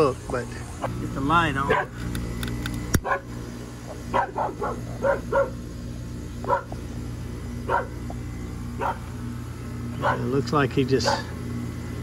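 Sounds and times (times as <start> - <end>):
air conditioner humming: 0.0 - 12.0
dog barking: 1.7 - 1.9, 3.0 - 3.3, 4.1 - 5.6, 6.4 - 6.8, 7.7 - 8.0, 8.8 - 9.0, 10.0 - 10.3, 11.0 - 11.3.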